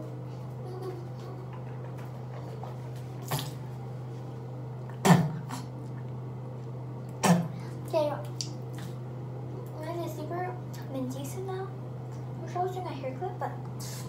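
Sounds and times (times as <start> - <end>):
steady low hum: 0.0 - 14.0
person spitting: 3.2 - 3.6, 4.9 - 5.8.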